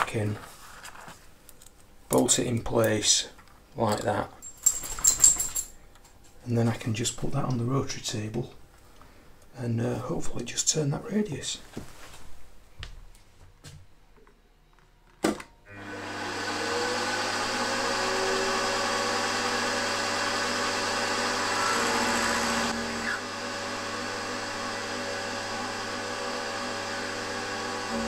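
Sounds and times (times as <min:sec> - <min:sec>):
end mill cutting aluminium: 0:15.9 - 0:28.0
milling machine spindle running: 0:15.9 - 0:28.0.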